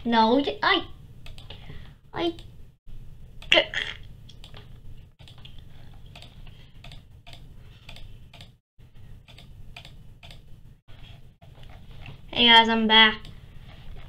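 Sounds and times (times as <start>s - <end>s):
keyboard and mouse clicking: 1.2s - 1.6s, 4.3s - 8.6s, 9.3s - 10.5s.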